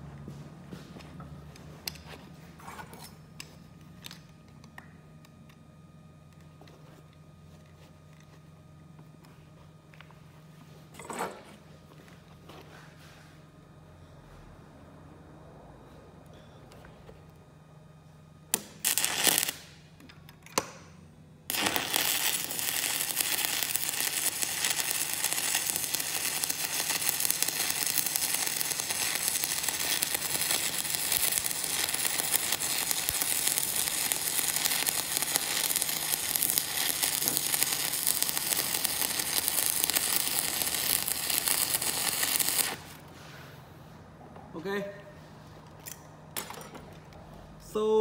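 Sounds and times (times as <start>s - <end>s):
welding arc crackling: 18.5s - 19.8s, 21.5s - 43.0s.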